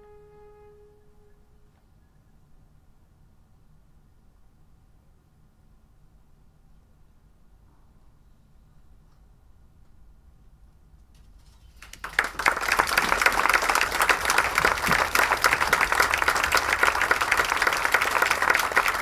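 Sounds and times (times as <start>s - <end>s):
audience applauding: 11.8s - 19.0s.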